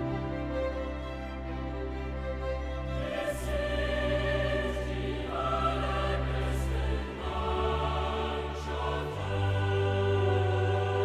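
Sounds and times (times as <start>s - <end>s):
choral background music: 0.0s - 11.0s.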